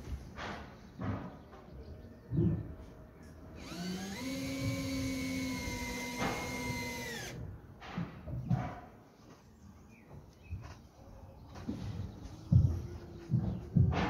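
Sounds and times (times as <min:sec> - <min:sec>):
power tool motor spinning: 0:03.6 - 0:07.4.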